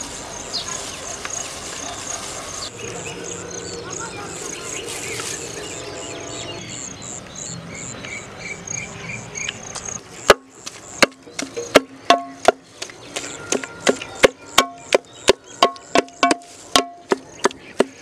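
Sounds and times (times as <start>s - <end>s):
cricket chirping: 0.0s - 12.5s.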